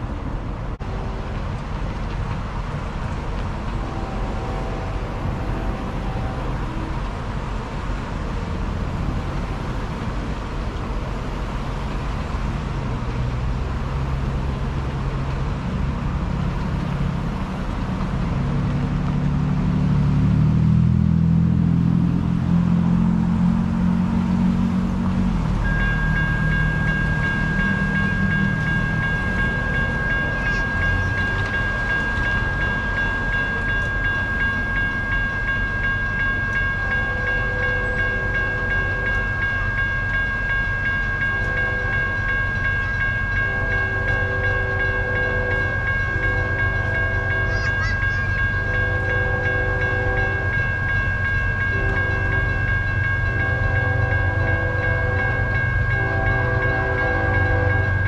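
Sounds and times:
low vehicle rumble: 0.0s - 58.0s
railroad crossing bell ringing: 23.5s - 58.0s.

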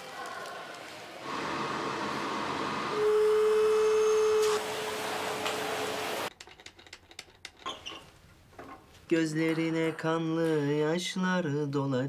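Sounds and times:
electric hand dryer blowing: 1.2s - 6.3s.

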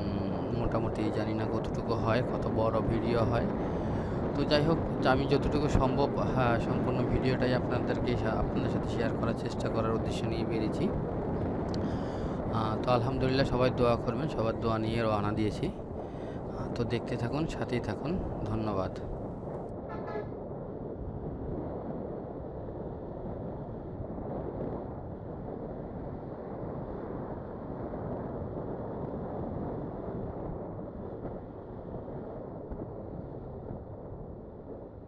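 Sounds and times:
motorcycle road and wind noise: 0.0s - 35.0s
horn toot: 19.9s - 20.3s.

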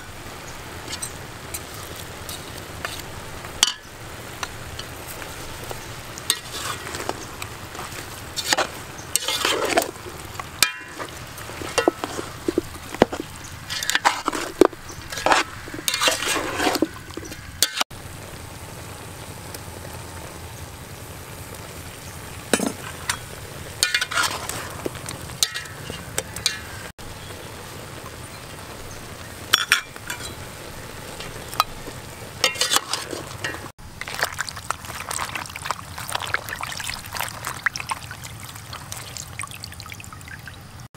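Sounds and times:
steady background hiss: 0.0s - 40.9s
metal spoon scraping a metal pot: 6.3s - 7.2s, 8.4s - 17.8s, 22.6s - 24.7s, 32.4s - 33.7s.

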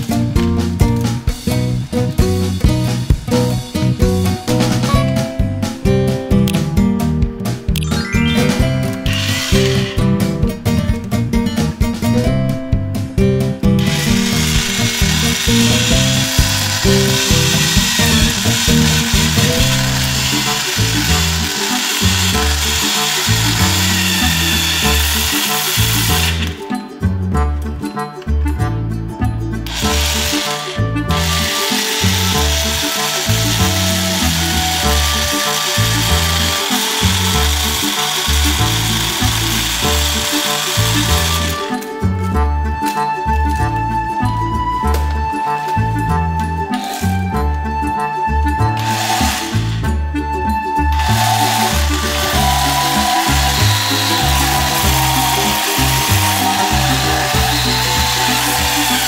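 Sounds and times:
background music with beat: 0.0s - 59.0s
toy chainsaw whirring: 9.0s - 10.0s, 13.8s - 26.6s, 29.7s - 41.9s, 48.8s - 49.9s, 50.9s - 59.0s.

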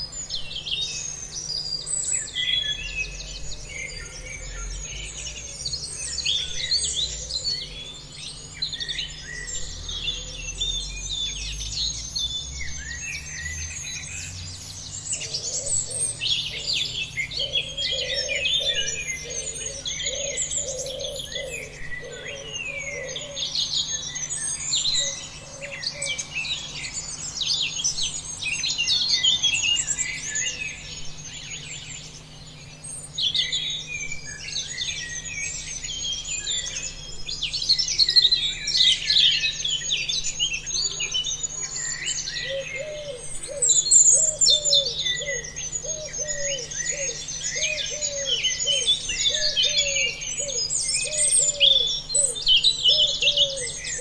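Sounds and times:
small birds chirping: 0.0s - 54.0s
lower repeated bird call: 15.0s - 54.0s.

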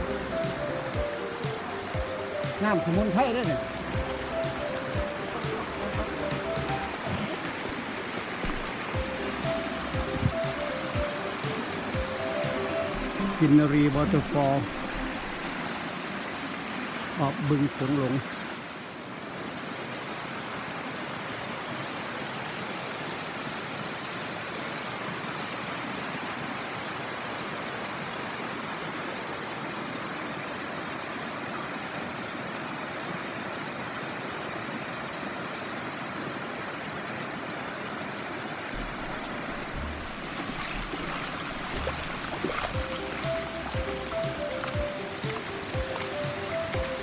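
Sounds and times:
music: 0.0s - 7.8s, 8.4s - 15.6s, 38.8s - 47.0s
waterfall rushing: 0.0s - 47.0s
low bumps: 5.9s - 10.5s, 38.8s - 46.2s.

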